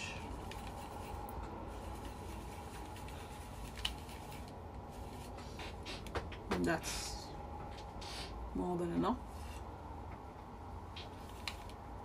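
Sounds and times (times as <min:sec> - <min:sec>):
low steady hum: 0:00.0 - 0:12.0
scratchy makeup brush handling: 0:01.8 - 0:06.1.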